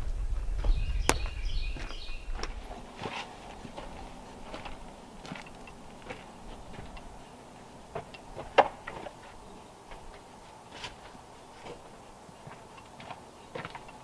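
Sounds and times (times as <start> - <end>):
firewood knocking on pile: 7.9 - 9.2.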